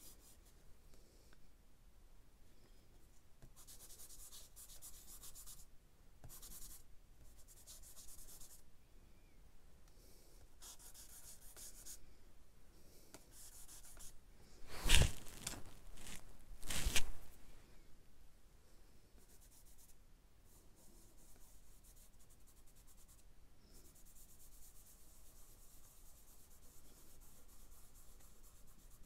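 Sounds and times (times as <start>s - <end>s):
charcoal scratching on paper: 3.5s - 8.6s, 10.6s - 12.0s, 13.2s - 17.3s, 23.8s - 29.0s.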